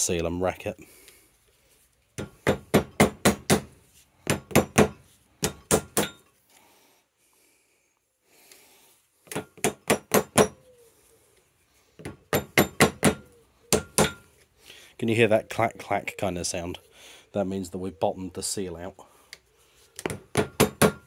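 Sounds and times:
hammer tapping metal: 4.3s - 6.3s, 12.0s - 14.3s.

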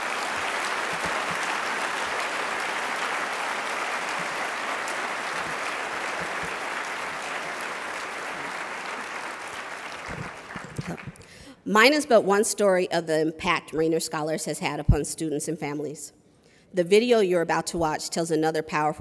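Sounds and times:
audience applauding: 0.0s - 11.3s.

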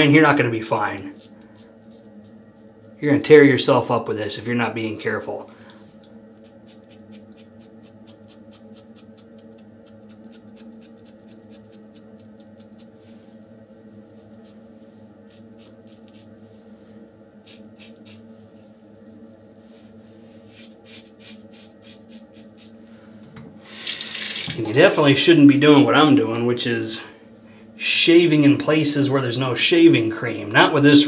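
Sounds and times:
steady low hum: 0.0s - 31.0s
razor scraping stubble: 1.1s - 3.0s, 6.4s - 16.4s, 17.4s - 18.3s, 20.5s - 22.8s.

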